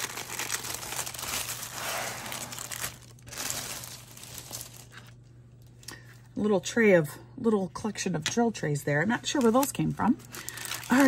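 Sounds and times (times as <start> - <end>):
plastic mailer bag crinkling: 0.0 - 5.7, 9.2 - 11.0.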